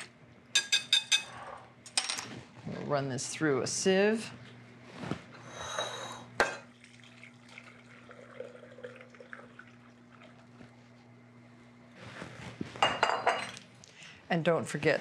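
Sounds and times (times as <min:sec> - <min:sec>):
glass clinking: 0:00.6 - 0:01.3, 0:12.8 - 0:13.6.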